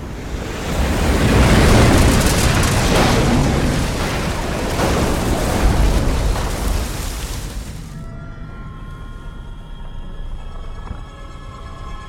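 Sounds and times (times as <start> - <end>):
deep rumbling explosion roar: 0.0 - 11.1
sharp crashes: 0.9 - 8.0.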